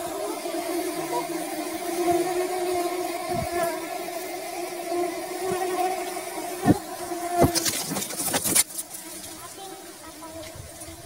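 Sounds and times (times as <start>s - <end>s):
honeybee colony buzzing: 0.0s - 11.0s
handling knocks and rustles: 6.6s - 9.0s.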